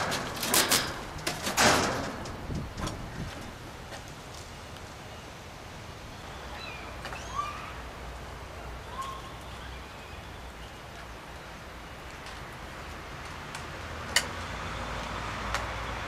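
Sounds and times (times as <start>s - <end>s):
bird chirps: 6.2s - 7.8s.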